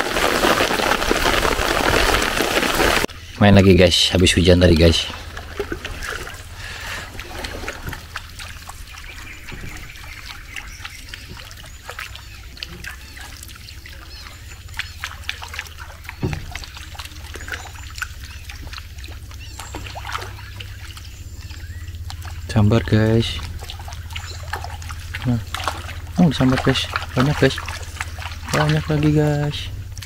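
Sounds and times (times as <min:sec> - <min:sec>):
small water splashes: 0:00.0 - 0:03.1, 0:04.7 - 0:30.0
fish striking splash: 0:12.8 - 0:21.0, 0:23.4 - 0:29.1.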